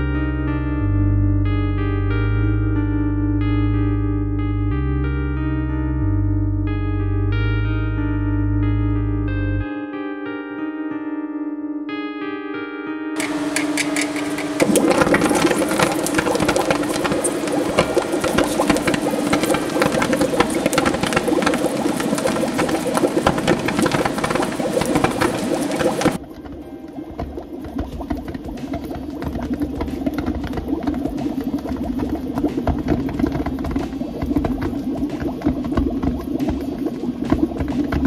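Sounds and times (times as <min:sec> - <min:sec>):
steady low bass: 0:00.0 - 0:09.7
sustained keyboard chords: 0:00.0 - 0:38.0
welding arc crackling and bubbling: 0:13.2 - 0:38.0.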